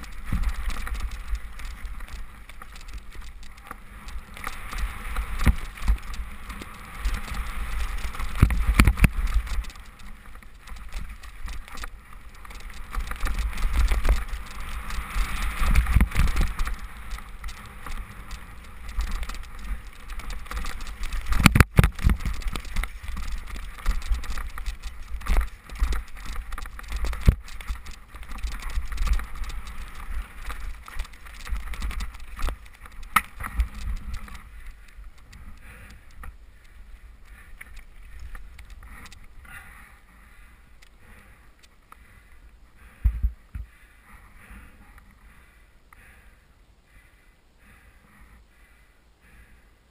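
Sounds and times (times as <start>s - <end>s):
bike knocking over rough ground: 0.0s - 36.4s
wind rumbling on microphone: 0.0s - 39.4s
bike rattling: 0.0s - 43.0s.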